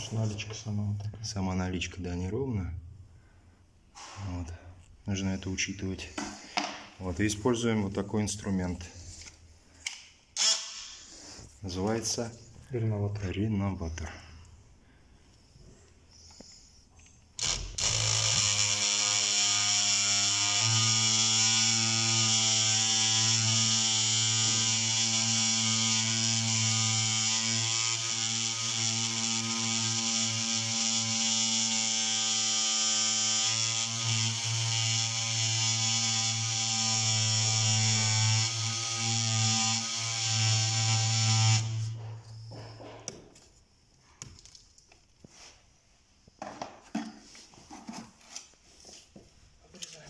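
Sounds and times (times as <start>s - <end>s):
oscillating multi-tool buzzing: 17.4s - 42.4s.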